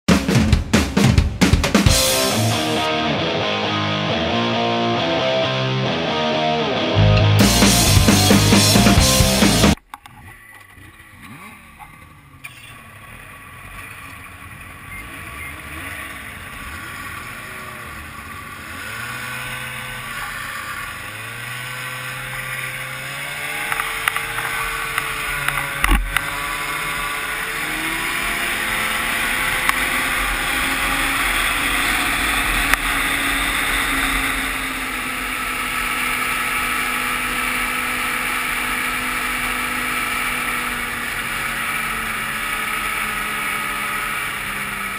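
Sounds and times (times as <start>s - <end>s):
snowmobile engine pulling away: 1.9s - 44.9s.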